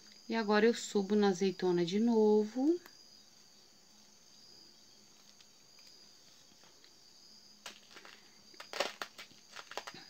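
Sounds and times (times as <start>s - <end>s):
soft rustle of beadwork: 4.6s - 7.0s, 7.6s - 10.0s.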